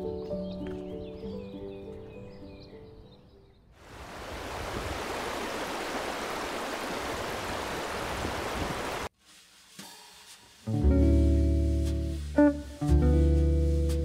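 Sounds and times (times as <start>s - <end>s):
soft music: 0.0s - 3.6s, 9.3s - 14.0s.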